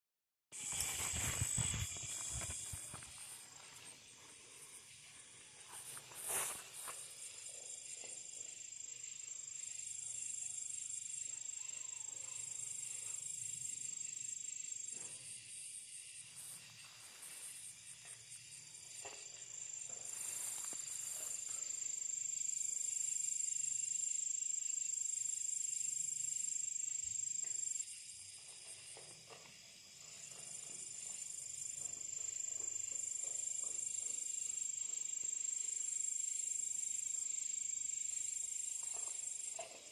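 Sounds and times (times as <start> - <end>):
night insects trilling: 0.6 - 39.9.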